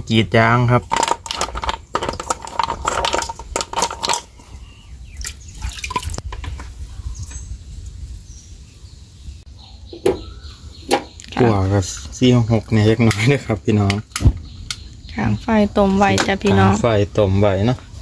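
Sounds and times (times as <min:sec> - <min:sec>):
mussel shells clacking in pot: 0:00.6 - 0:04.6.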